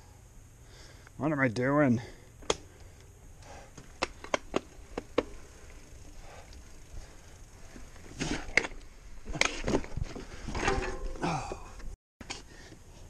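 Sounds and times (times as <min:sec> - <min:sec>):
bike clattering: 0:02.4 - 0:11.9
bike clicking and knocking on rocks: 0:03.7 - 0:06.7, 0:07.6 - 0:11.9.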